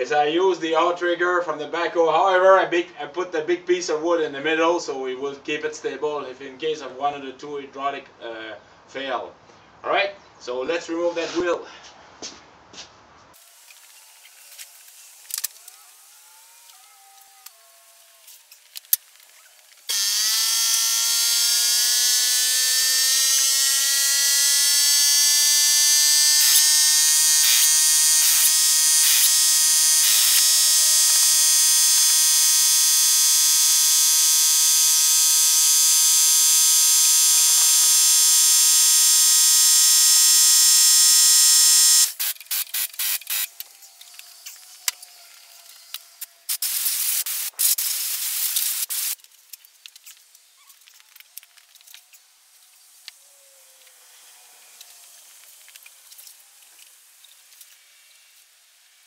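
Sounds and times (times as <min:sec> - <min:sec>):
small motor whining: 0:13.4 - 0:49.2.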